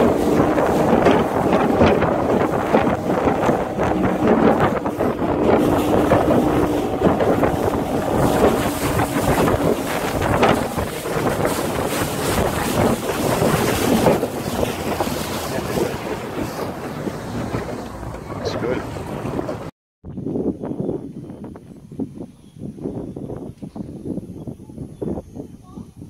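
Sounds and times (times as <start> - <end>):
boat motor humming: 0.0 - 19.7
water rushing along hull: 0.0 - 19.7
wind buffeting microphone: 0.0 - 26.0.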